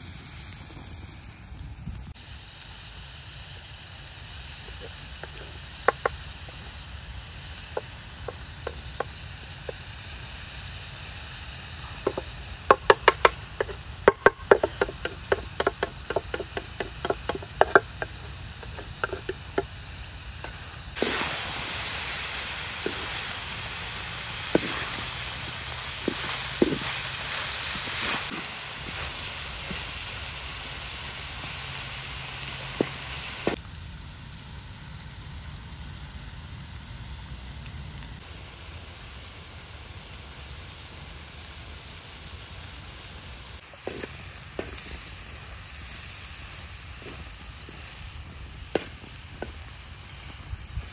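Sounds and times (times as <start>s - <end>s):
vegetables sizzling in wok: 0.0s - 50.9s
wooden spatula tapping wok: 5.2s - 6.6s, 7.6s - 9.8s, 12.0s - 19.8s.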